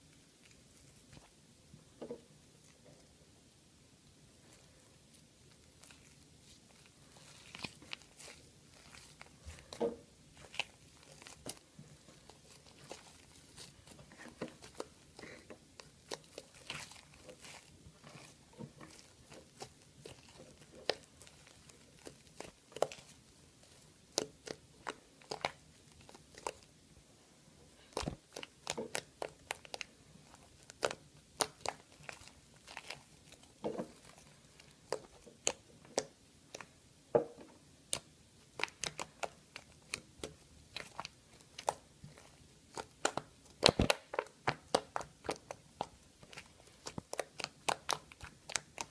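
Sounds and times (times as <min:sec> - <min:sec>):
slime sticky clicks and crackles: 0:14.4 - 0:26.7, 0:27.9 - 0:36.7, 0:37.9 - 0:48.9.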